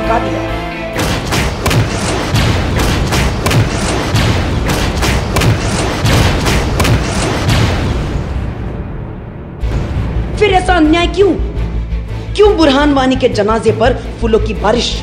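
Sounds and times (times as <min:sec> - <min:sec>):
heavy bangs and thuds: 0:01.0 - 0:09.0.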